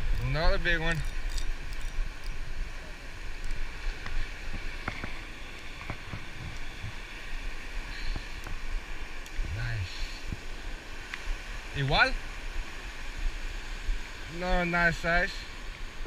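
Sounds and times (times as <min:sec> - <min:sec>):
wind noise on microphone: 0:00.0 - 0:08.8
ocean surf: 0:00.0 - 0:16.0.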